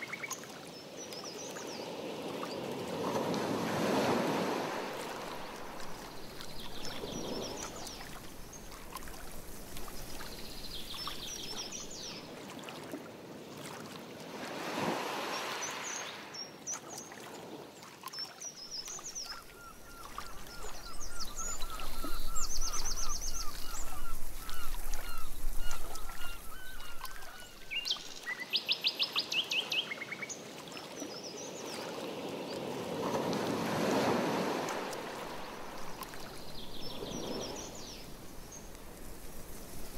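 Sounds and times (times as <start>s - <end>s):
paddle strokes swishing through water: 2.5s - 15.6s, 16.6s - 28.2s, 32.6s - 39.9s
birds calling: 18.9s - 28.4s.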